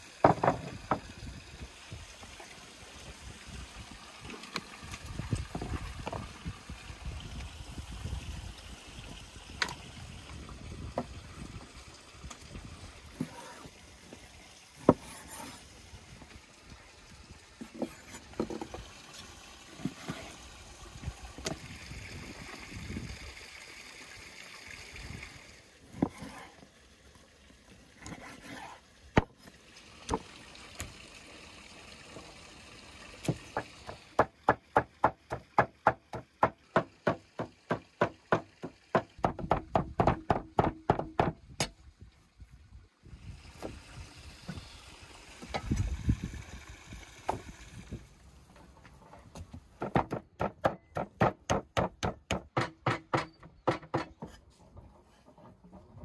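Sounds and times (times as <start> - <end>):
cleaver chopping meat on wood: 34.2 - 41.4, 49.8 - 54.1.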